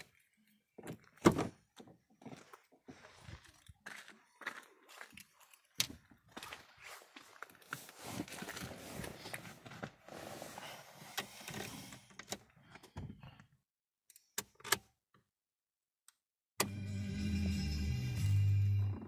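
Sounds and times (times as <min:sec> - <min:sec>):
music: 0:16.6 - 0:19.0.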